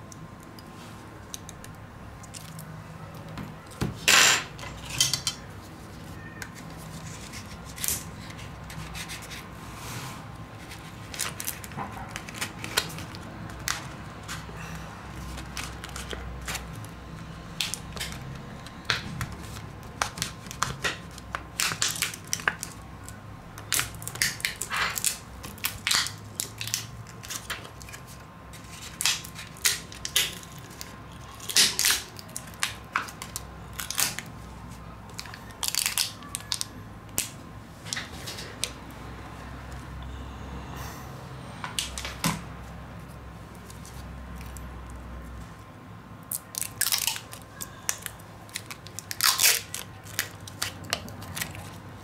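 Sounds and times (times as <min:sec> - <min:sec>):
faint steady hum: 0:00.0 - 0:52.0.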